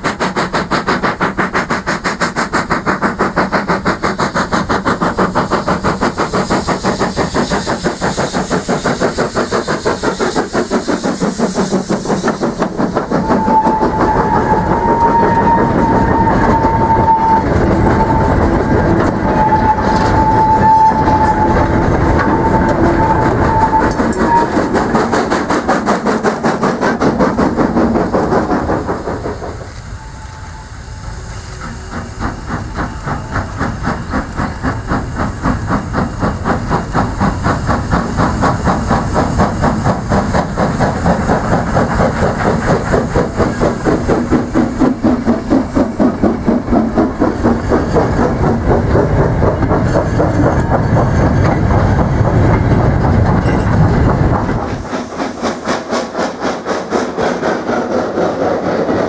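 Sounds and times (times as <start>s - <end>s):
steam hissing: 0.0s - 59.0s
steam locomotive exhaust beat: 0.0s - 59.0s
long thin squeal: 13.1s - 24.9s, 29.2s - 31.9s
wagons rolling with rail clatter: 46.0s - 59.0s.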